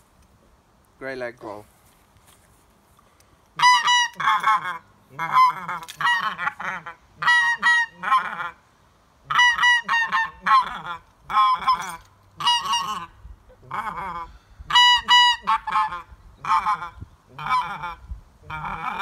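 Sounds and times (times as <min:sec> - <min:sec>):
goose call honks and chattering: 0:03.6 - 0:08.6, 0:09.2 - 0:19.0.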